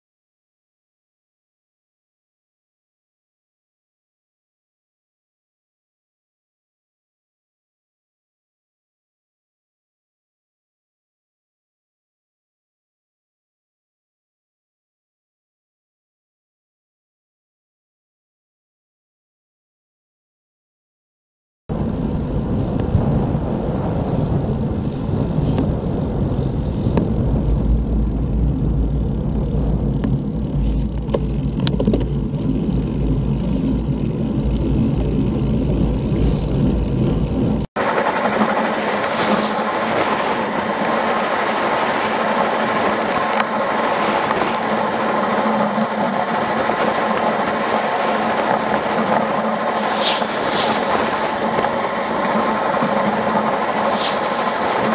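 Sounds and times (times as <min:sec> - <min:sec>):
wind rushing over microphone: 0:21.7 - 0:54.9.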